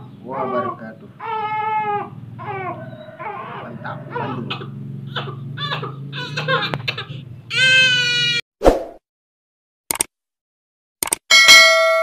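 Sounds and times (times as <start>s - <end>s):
young child crying and wailing: 5.2s - 8.4s
bell-like ding: 11.3s - 12.0s.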